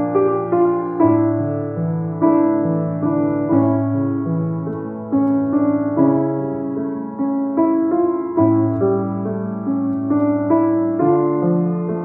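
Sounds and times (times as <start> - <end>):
grand piano chords: 0.0 - 12.0.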